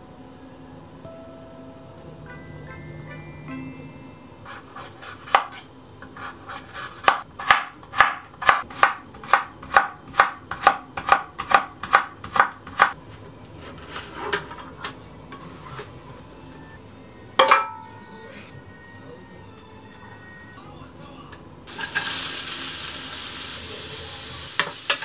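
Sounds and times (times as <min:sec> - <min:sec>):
knife chopping on wooden board: 0:04.8 - 0:13.0.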